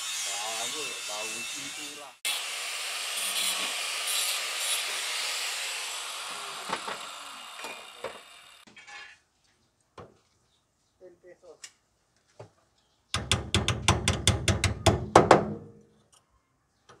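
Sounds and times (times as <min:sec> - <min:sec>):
angle grinder grinding metal: 0:00.0 - 0:09.0.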